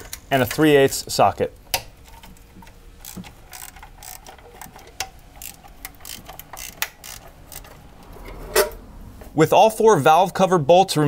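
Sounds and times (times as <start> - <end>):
ratchet clicking: 2.6 - 7.9.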